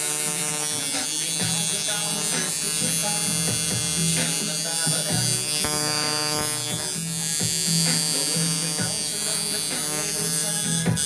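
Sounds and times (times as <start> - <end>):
tattoo machine buzzing: 0.0 - 11.0.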